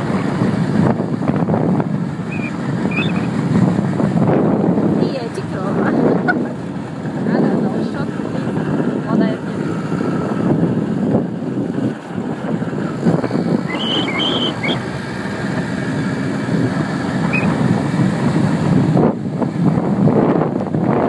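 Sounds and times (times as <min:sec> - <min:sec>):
wind buffeting microphone: 0:00.0 - 0:21.0
short high chirps: 0:13.7 - 0:14.8.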